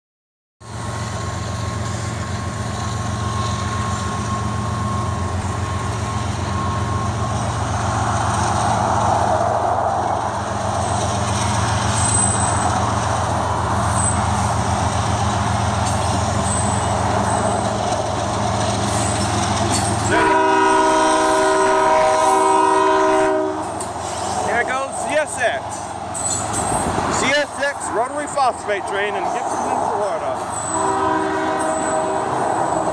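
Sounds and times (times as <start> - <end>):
diesel locomotive engine rumble: 0.6 - 32.9
train horn chord: 20.0 - 23.8, 30.7 - 32.9.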